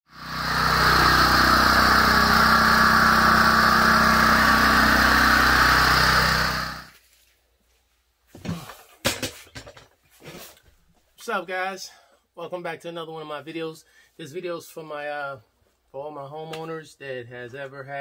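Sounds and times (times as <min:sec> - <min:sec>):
generator engine running: 0:00.1 - 0:06.9.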